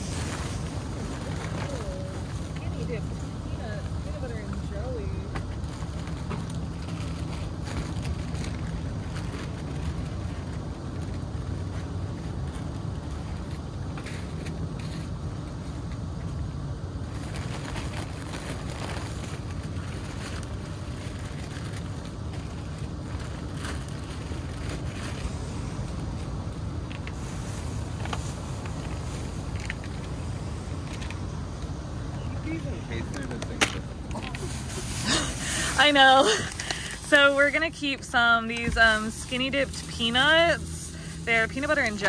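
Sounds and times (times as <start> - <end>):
steady low rumble: 0.0 - 42.0
plastic bag crinkling: 5.5 - 15.5, 17.0 - 31.7.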